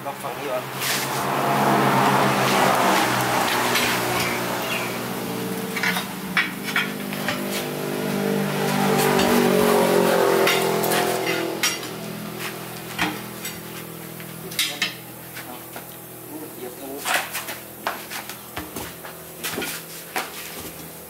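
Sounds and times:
engine running: 0.0 - 21.0
tire irons clanking on steel rim: 2.4 - 4.9, 5.5 - 7.7, 8.8 - 15.1
sharp metal knocks: 10.4 - 12.0.

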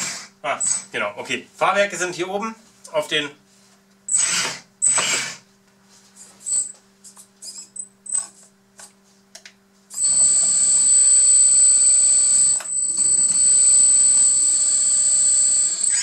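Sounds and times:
hydraulic pump whining: 4.1 - 5.4, 9.9 - 16.0.

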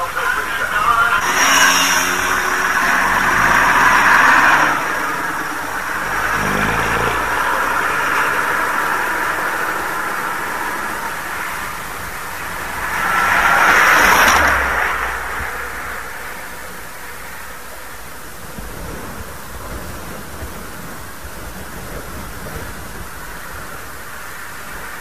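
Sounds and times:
bus engine driving past: 0.0 - 25.0
road noise: 0.0 - 25.0
car passing close by: 1.0 - 19.1.

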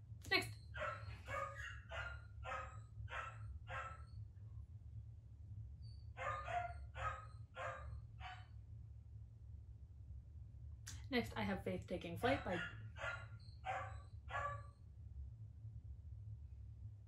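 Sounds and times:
puppy barking: 0.7 - 4.1, 6.2 - 8.5, 12.3 - 14.7.

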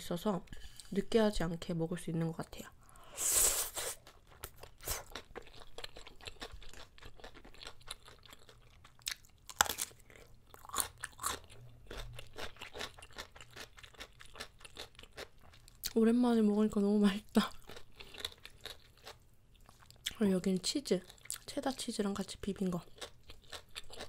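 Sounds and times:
crunchy chewing: 3.8 - 16.0, 17.4 - 20.2, 22.8 - 24.0.

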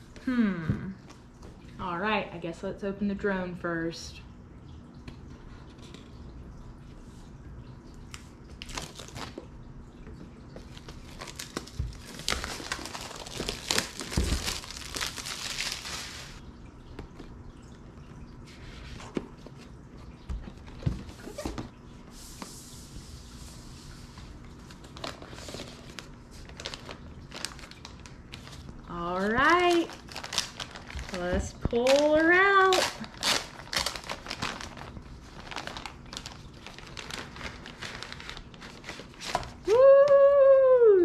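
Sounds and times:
plastic shrink wrap crinkling: 8.6 - 9.5, 10.5 - 16.4, 24.7 - 39.8.

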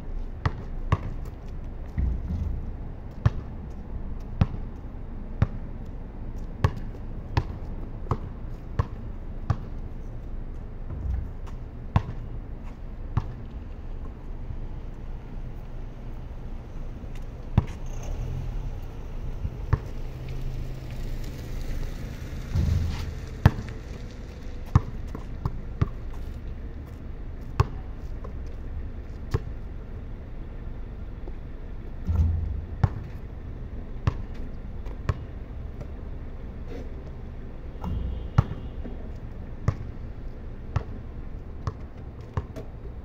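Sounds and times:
basketball bouncing on concrete: 0.4 - 4.8, 5.4 - 5.6, 6.4 - 9.8, 10.9 - 12.3, 13.1 - 13.4, 17.6 - 17.8, 22.5 - 23.9, 24.6 - 28.4, 29.3 - 29.5, 32.0 - 33.4, 34.0 - 36.0, 37.8 - 39.0, 39.6 - 39.9, 40.7 - 41.0, 41.6 - 42.7
short low rumble: 32.0 - 33.8.

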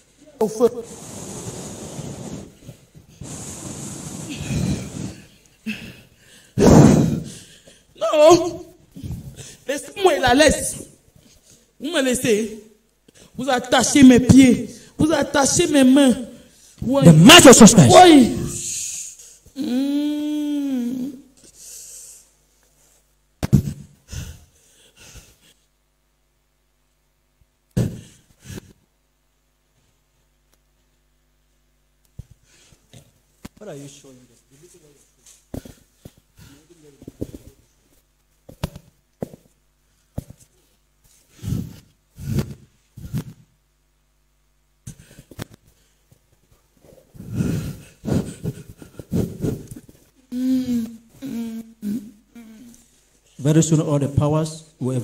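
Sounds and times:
loud sharp gasp: 4.3 - 7.8
heavy breathing: 4.3 - 7.9, 47.1 - 51.5.

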